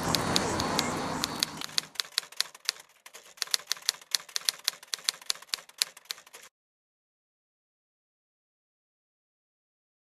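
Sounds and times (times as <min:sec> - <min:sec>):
keyboard key clicks: 0:00.0 - 0:06.5.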